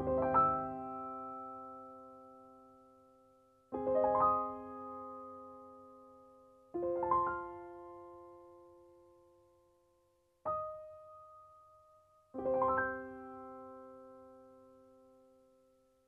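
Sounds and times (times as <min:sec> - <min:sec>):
soft solo piano chords: 0:03.7 - 0:08.9, 0:10.5 - 0:11.6, 0:12.4 - 0:15.2.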